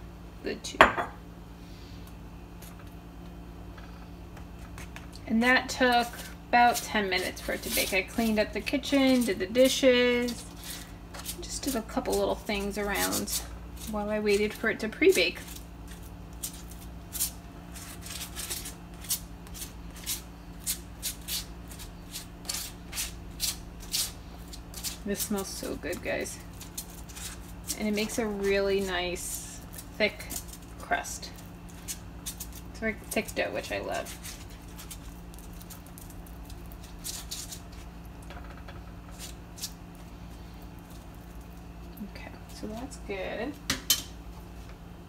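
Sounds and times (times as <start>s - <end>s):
plastic spoon scraping pizza crust: 4.6s - 38.0s, 39.0s - 41.6s.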